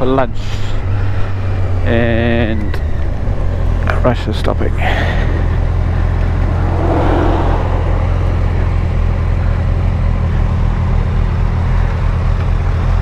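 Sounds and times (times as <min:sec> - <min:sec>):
wind noise: 0:05.9 - 0:09.3.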